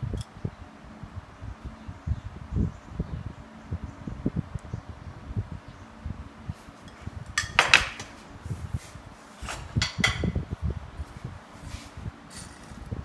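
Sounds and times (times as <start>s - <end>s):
metal spoon clinking on dishes: 6.9s - 7.9s.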